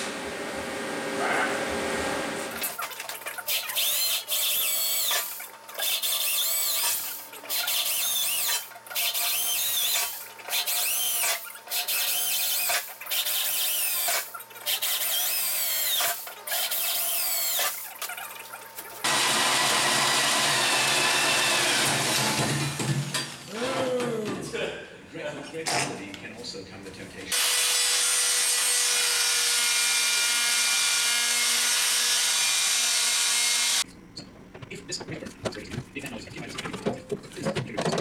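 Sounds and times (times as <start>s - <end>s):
electric drill boring into metal: 3.5s - 17.8s, 19.0s - 22.8s, 27.3s - 33.8s
hole saw cutting metal sheet: 3.5s - 17.8s
squealing drill bit: 3.5s - 17.8s.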